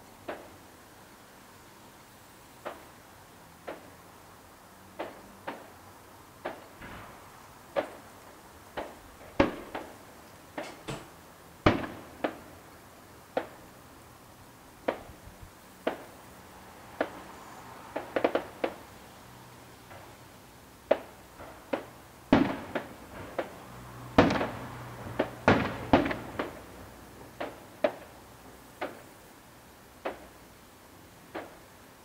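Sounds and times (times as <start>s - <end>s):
distant firework bangs: 0.2s - 0.6s, 2.6s - 2.9s, 5.0s - 5.8s, 6.4s - 12.6s, 13.3s - 13.7s, 14.8s - 15.2s, 15.8s - 16.2s, 16.9s - 18.9s, 20.8s - 29.2s, 30.0s - 30.4s, 31.3s - 31.7s.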